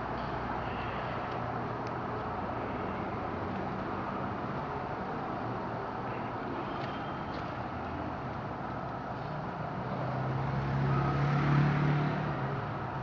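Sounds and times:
background traffic noise: 0.0s - 13.0s
passing vehicle engine hum: 7.7s - 13.0s.

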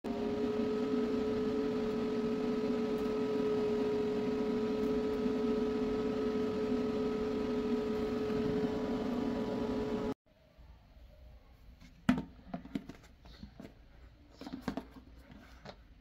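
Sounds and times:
electric fan motor humming: 0.0s - 10.2s.

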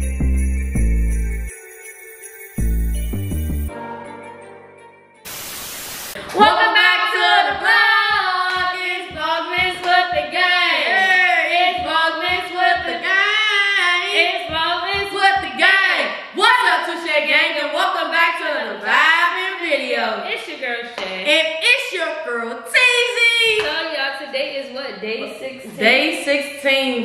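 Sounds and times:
music: 0.0s - 5.4s, 6.2s - 18.2s
hiss: 5.3s - 6.2s
woman singing: 6.2s - 20.3s.

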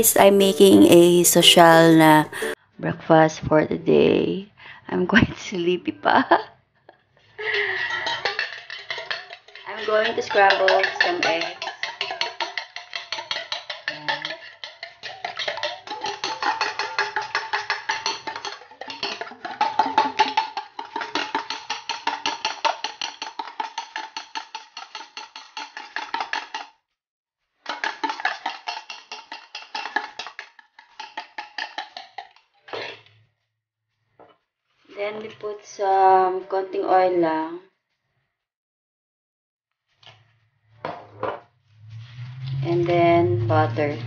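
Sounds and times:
fork beating egg in metal bowl: 7.5s - 26.8s, 27.6s - 33.1s.

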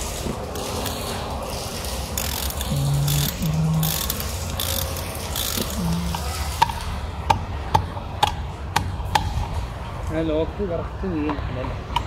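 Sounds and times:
ratchet wrench rasping: 1.7s - 6.8s.

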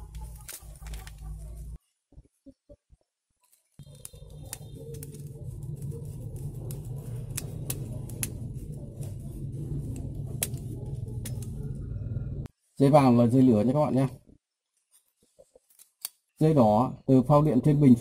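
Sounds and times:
low background rumble: 3.8s - 12.5s.

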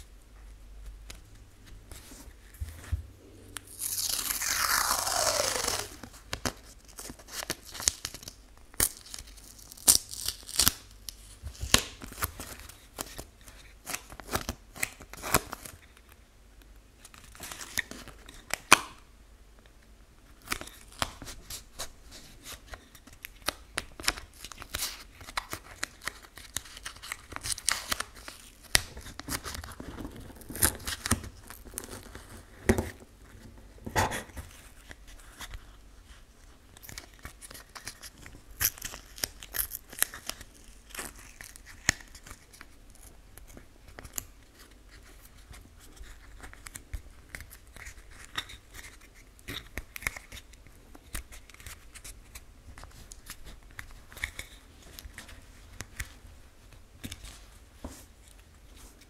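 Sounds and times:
masking tape crinkling and tearing: 3.5s - 15.8s, 20.4s - 32.8s, 34.2s - 56.2s.

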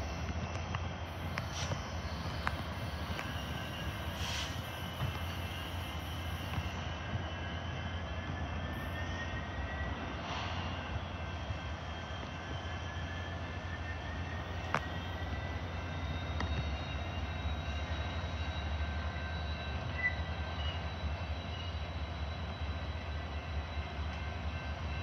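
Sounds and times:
diesel locomotive engine rumbling: 0.0s - 25.0s.

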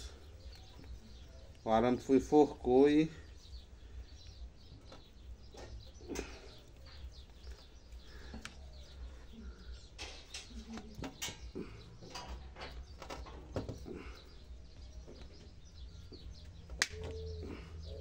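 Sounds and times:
faint bird chirps: 0.0s - 18.0s
clicks and rustles of branches: 9.8s - 17.7s.

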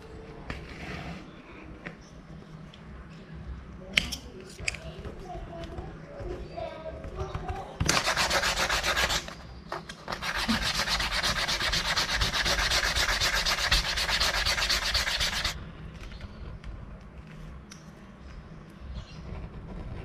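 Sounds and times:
rubbing on leather wallet: 7.9s - 9.4s, 10.1s - 15.6s.

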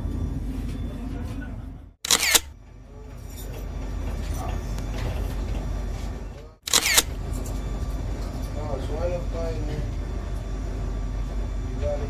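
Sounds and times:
camera shutter double click: 2.1s - 2.5s, 6.7s - 7.1s.

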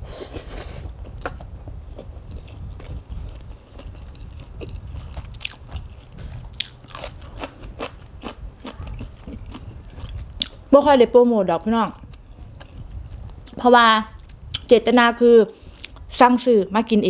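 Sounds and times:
chewing crunchy vegetables: 0.3s - 10.6s, 12.0s - 14.7s.

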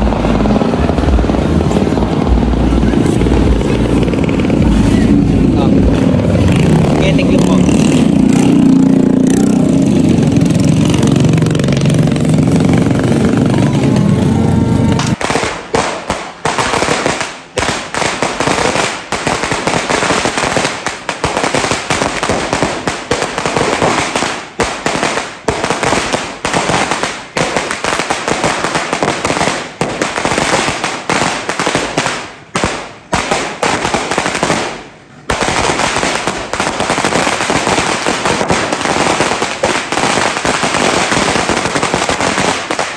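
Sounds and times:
loud low rumble: 0.0s - 15.2s
firecrackers crackling: 0.0s - 42.9s.

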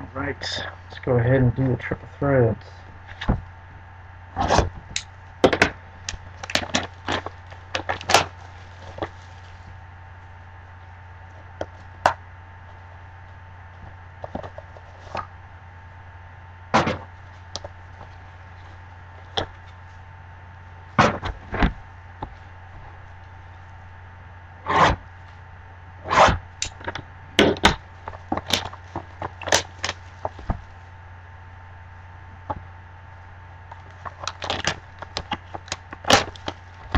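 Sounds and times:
low electrical hum: 0.0s - 36.9s
plastic wrap crinkling and tearing: 28.1s - 30.8s, 33.8s - 36.9s.

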